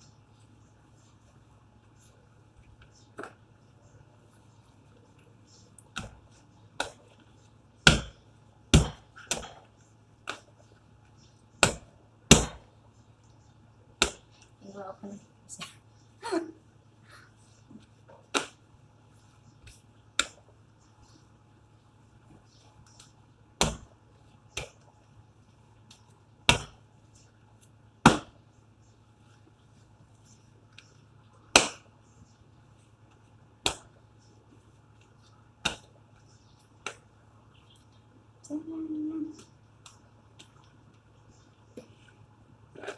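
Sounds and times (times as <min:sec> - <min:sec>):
faint low hum: 0:00.0 - 0:42.9
dough slapped on countertop: 0:07.8 - 0:10.5, 0:11.6 - 0:12.6, 0:14.0 - 0:14.3, 0:18.3 - 0:18.6, 0:23.6 - 0:23.9, 0:26.5 - 0:26.8, 0:28.0 - 0:28.4, 0:31.5 - 0:31.9, 0:33.6 - 0:33.9, 0:35.6 - 0:35.9.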